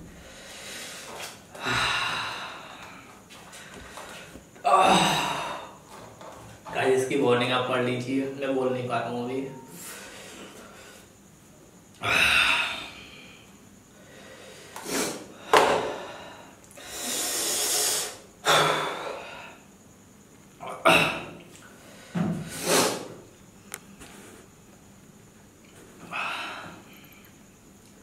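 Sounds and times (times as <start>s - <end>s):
man exhaling: 0.0s - 3.1s, 4.7s - 5.8s, 12.0s - 13.5s, 26.0s - 27.2s.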